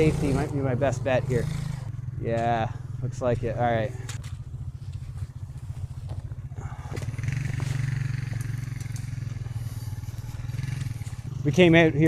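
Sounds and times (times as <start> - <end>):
atv engine running: 0.0 - 12.0.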